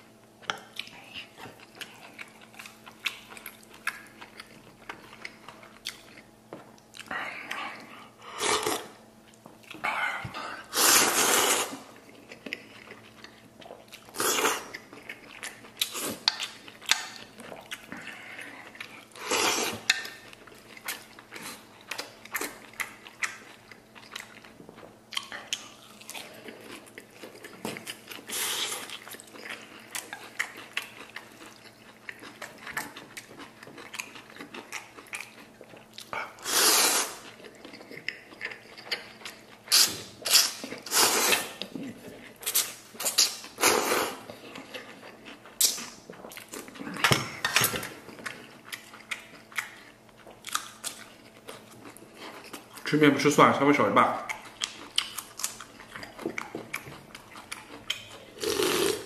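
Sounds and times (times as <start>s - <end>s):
close-up chewing: 0.4s - 59.0s
noodles slurped: 10.6s - 11.9s, 36.4s - 37.4s, 39.7s - 41.6s, 57.6s - 59.0s.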